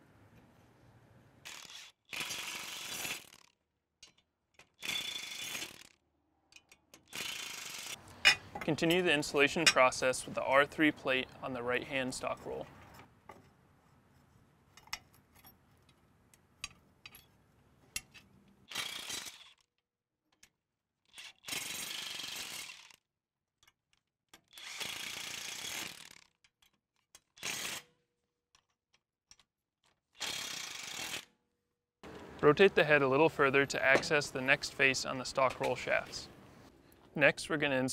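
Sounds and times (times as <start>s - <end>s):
impact wrench bursts: 1.4s - 3.4s, 4.8s - 6.0s, 7.0s - 8.4s, 30.2s - 31.3s
metal clicks of bolts and socket: 6.5s - 7.2s.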